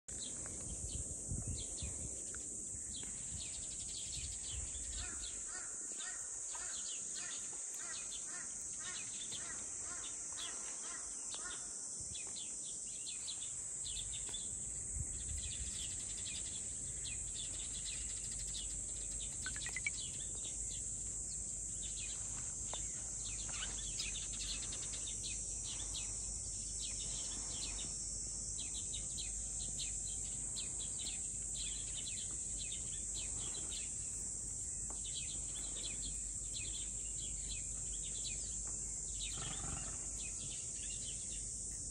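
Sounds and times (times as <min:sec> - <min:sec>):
high-pitched insect drone: 0:18.0 - 0:20.3
short bird chirps: 0:19.4 - 0:20.1.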